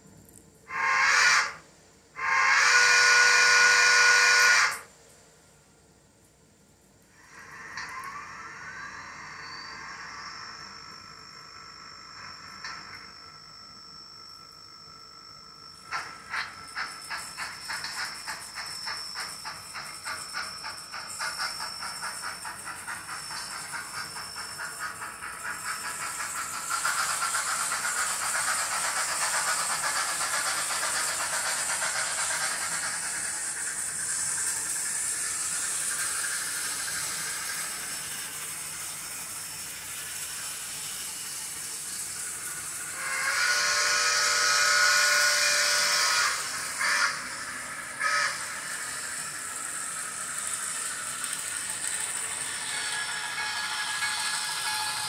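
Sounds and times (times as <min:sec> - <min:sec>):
steam whistle: 0:00.7 - 0:01.6, 0:02.2 - 0:04.9, 0:42.9 - 0:49.0
steam locomotive chuffs: 0:00.7 - 0:05.0, 0:07.1 - 0:55.0.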